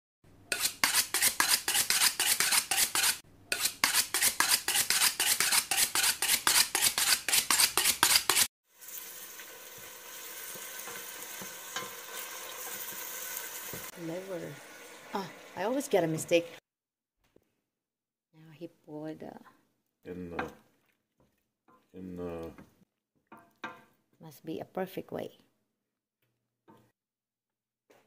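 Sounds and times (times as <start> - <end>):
frying sizzle: 8.6 - 16.6.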